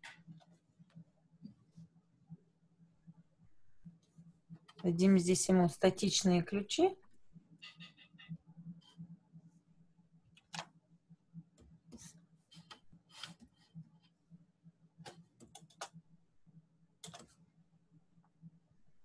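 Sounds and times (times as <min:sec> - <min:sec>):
computer mouse clicks: 0:15.0 - 0:16.0, 0:17.0 - 0:17.4.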